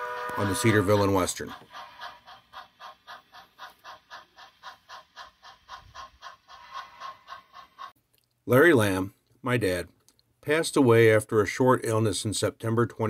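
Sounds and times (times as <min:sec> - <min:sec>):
model train rapid ticking: 0:00.0 - 0:08.0.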